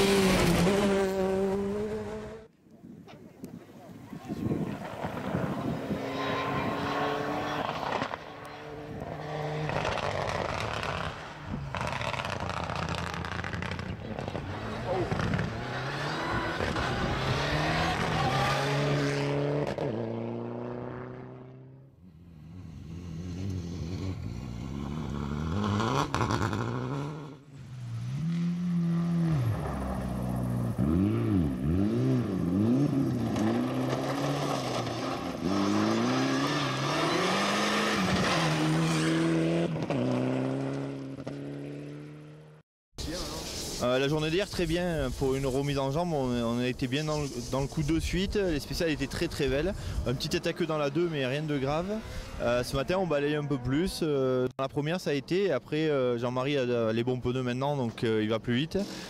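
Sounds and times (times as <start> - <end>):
rally car engines revving: 0.0 - 2.5, 4.6 - 42.5.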